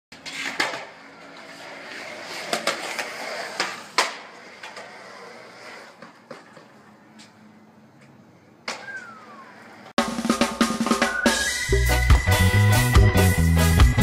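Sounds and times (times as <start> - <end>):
skateboard clacks: 0.1 - 6.8
skateboard wheels rolling on concrete: 0.1 - 11.6.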